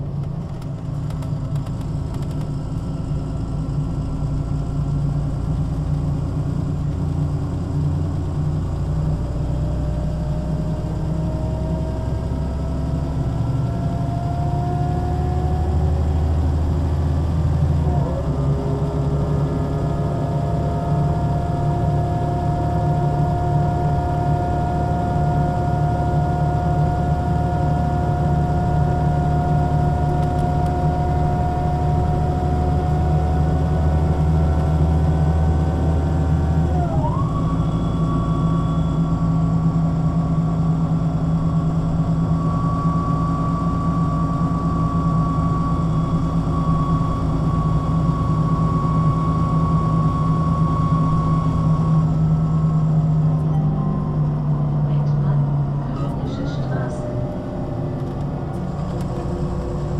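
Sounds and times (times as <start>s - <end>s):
bus diesel engine running: 0.0s - 59.9s
gearbox whine: 17.6s - 59.9s.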